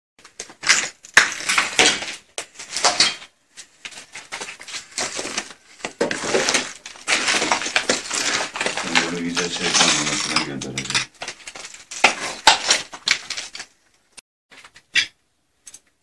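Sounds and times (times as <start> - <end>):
footsteps on rubble: 0.2 - 13.8.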